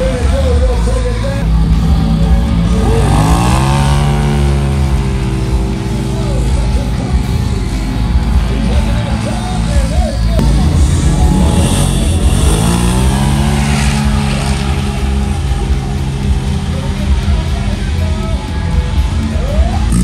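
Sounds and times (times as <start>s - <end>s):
engines revving hard: 0.0s - 20.0s.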